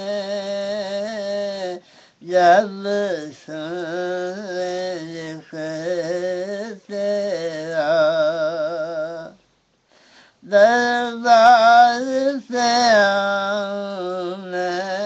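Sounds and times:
man singing devotional song: 0.0s - 9.4s, 10.1s - 15.0s.

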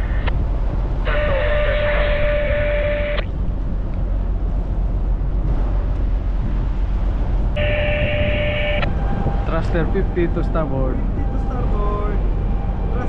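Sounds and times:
steady low rumble: 0.0s - 13.0s
radio tone over hiss: 1.1s - 3.3s, 7.6s - 8.9s.

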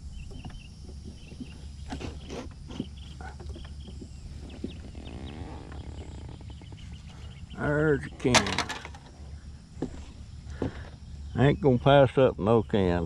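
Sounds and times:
scooter motor hum: 0.2s - 11.0s
scooter knocks and rattles: 8.3s - 9.1s.

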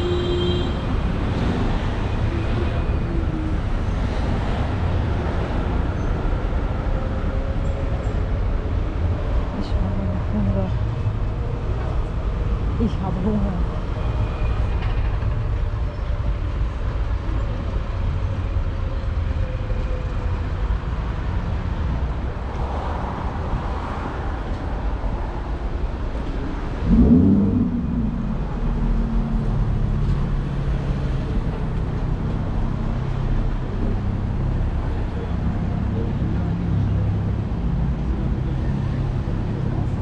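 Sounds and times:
street traffic rumble: 0.0s - 40.0s
vehicle engine surging: 26.1s - 31.5s.

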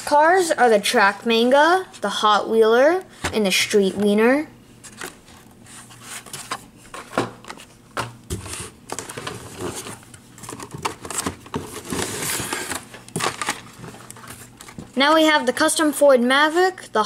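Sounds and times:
card and plastic rustling: 4.8s - 15.8s.

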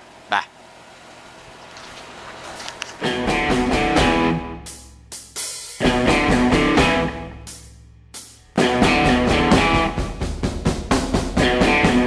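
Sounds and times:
rock music: 3.0s - 12.0s.

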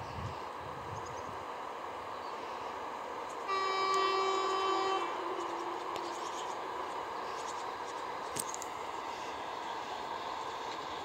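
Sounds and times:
locomotive horn: 3.5s - 6.5s.

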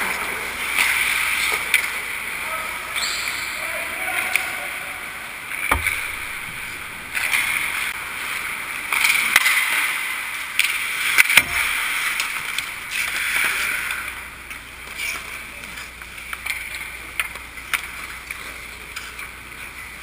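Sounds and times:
hockey sticks and puck clacking: 0.0s - 2.0s, 5.5s - 8.0s, 8.8s - 20.0s
puck thudding against goal frame: 5.6s - 7.8s, 10.6s - 13.0s
skate blades scraping on ice: 10.6s - 14.2s.

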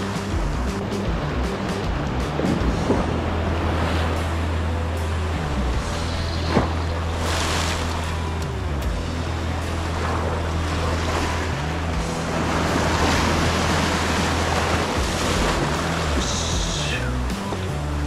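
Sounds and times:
low drone bending in pitch: 0.0s - 18.0s
surf washing against rocky shore: 9.2s - 17.8s.

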